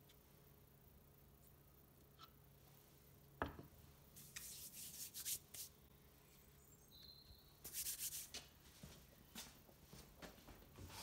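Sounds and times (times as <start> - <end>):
hands rubbing on wood: 4.2 - 5.7, 7.6 - 8.4.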